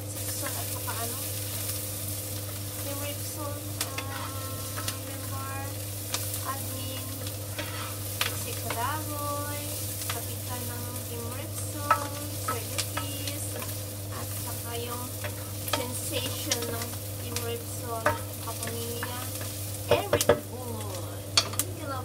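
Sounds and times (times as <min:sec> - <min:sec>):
frying sizzle: 0:00.0 - 0:22.0
wooden spoon scraping pan: 0:03.8 - 0:05.4, 0:07.4 - 0:08.9
spoon knocking against pan: 0:18.0 - 0:20.5, 0:21.4 - 0:21.6.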